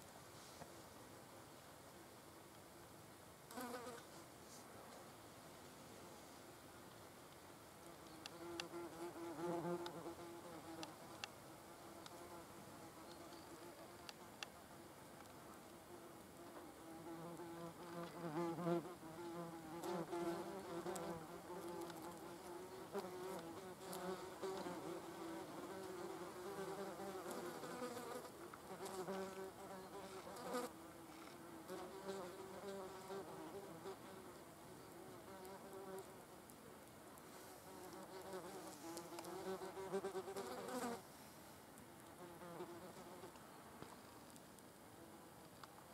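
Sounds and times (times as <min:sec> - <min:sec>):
faint ticks: 0:06.8 - 0:08.8, 0:09.7 - 0:10.0, 0:10.8 - 0:11.4, 0:20.9 - 0:22.3.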